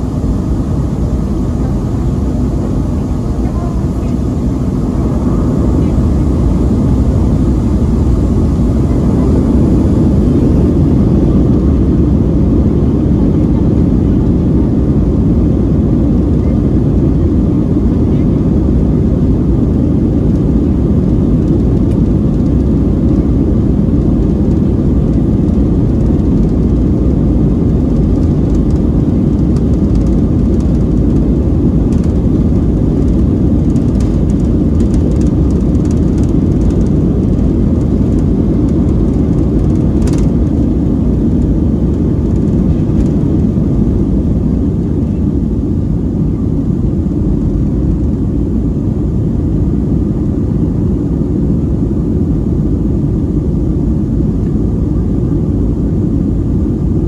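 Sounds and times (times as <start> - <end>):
jet engines at takeoff thrust: 0.0 - 57.0
wheels rumbling on runway: 0.0 - 57.0.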